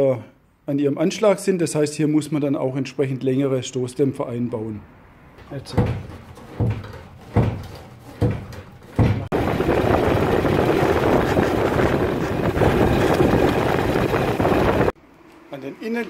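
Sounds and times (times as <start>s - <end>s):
car tyre and road noise: 5.0s - 15.0s
dull thumps: 5.4s - 14.9s.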